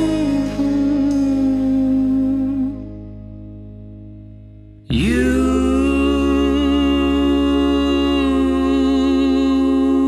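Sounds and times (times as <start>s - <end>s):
low drone: 0.0s - 10.0s.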